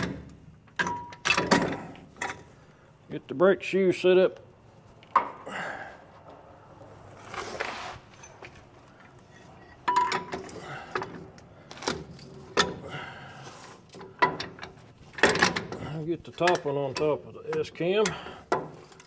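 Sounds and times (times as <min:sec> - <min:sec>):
metallic clinks and knocks: 0:00.0 - 0:02.4, 0:08.1 - 0:12.8
soft metal scraping: 0:06.8 - 0:09.8.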